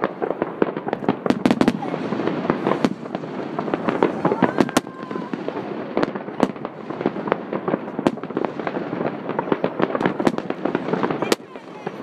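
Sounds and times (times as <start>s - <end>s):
fireworks and firecrackers banging: 0.0s - 12.0s.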